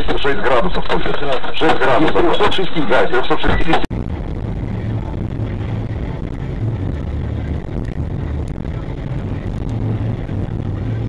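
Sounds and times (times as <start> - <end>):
car engine and road noise: 3.8 - 11.0
low drone: 3.9 - 11.0.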